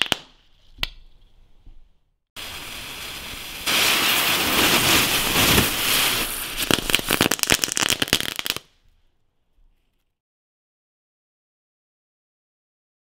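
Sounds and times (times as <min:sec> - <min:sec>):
firework hissing and crackling: 0:02.4 - 0:08.7.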